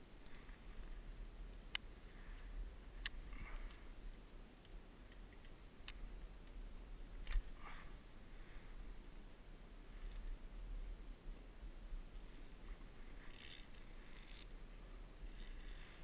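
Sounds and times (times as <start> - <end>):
low steady rumble: 0.0 - 16.0
climbing hardware clicks: 13.0 - 14.5, 15.2 - 16.0.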